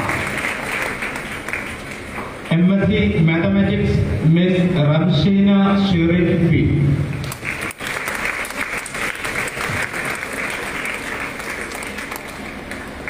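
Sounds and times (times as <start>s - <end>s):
audience applauding: 0.0s - 2.4s, 7.2s - 13.0s.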